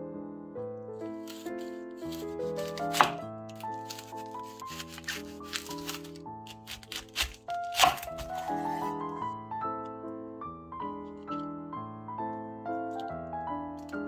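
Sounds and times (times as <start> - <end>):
background piano music: 0.0 - 14.0
knife crunching through cabbage: 1.2 - 9.0.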